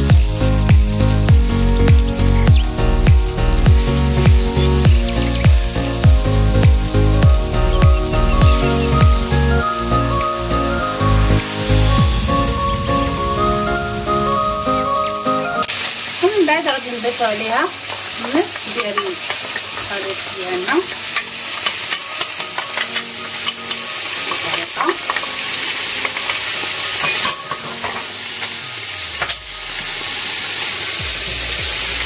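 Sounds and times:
food sizzling in a pan: 0.0s - 32.0s
utensil scraping a pan: 17.8s - 28.6s.

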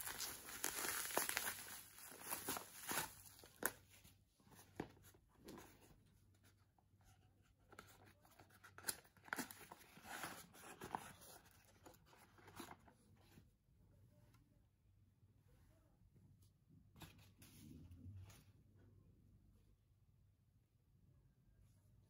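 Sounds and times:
cardboard packaging rustling: 0.0s - 3.9s, 7.8s - 12.9s.

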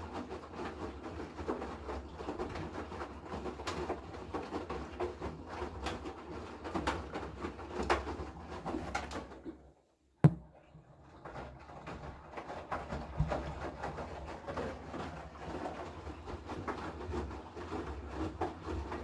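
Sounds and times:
washing machine sloshing: 0.0s - 19.0s
sharp thump: 10.2s - 10.5s.

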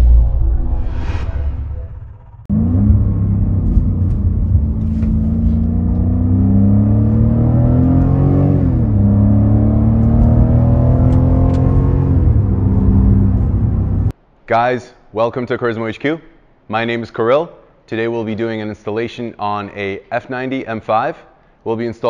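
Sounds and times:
car engine accelerating: 2.0s - 14.1s.

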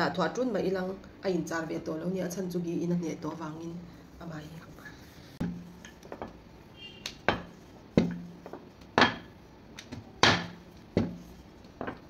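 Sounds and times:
rolling pin knocking on glass: 7.2s - 12.0s.

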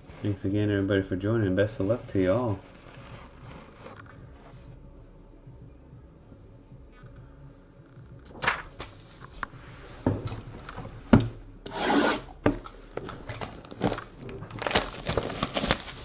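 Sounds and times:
plastic shrink wrap crinkling: 1.8s - 4.2s, 12.6s - 16.0s.

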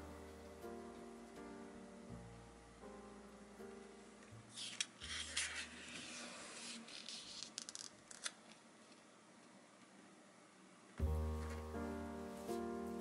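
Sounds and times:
paper pages turning: 4.5s - 8.6s.

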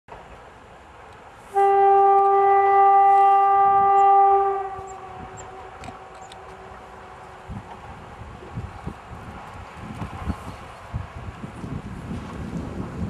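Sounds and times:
locomotive horn blast: 1.5s - 7.3s.

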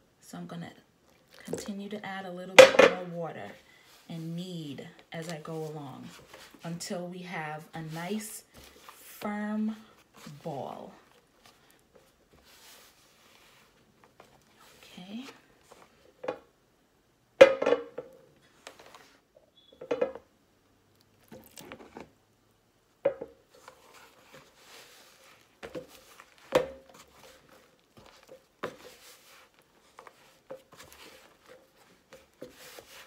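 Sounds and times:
hands squishing dough: 23.6s - 33.0s.

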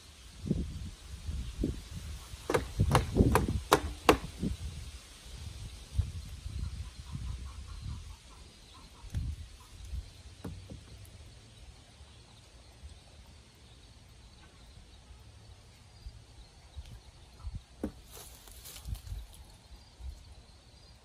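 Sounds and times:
hammer knocking on wood: 2.5s - 4.3s, 10.4s - 10.9s, 17.8s - 18.0s.

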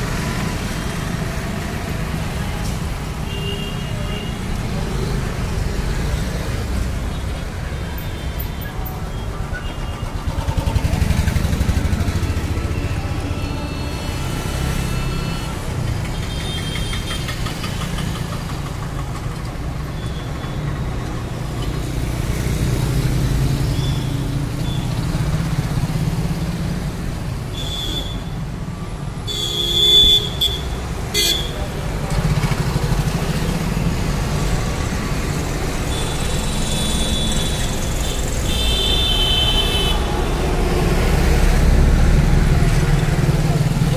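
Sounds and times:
vehicle engines running: 8.6s - 27.5s, 30.6s - 43.9s.

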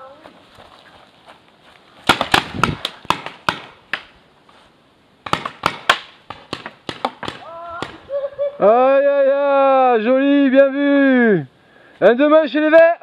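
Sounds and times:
paintball markers firing: 2.1s - 4.1s, 5.3s - 8.0s.

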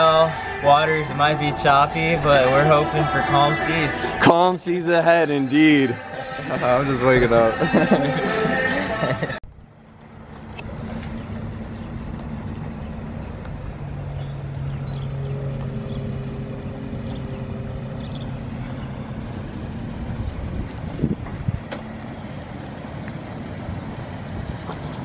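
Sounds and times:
pickup truck engine humming: 0.0s - 25.0s.

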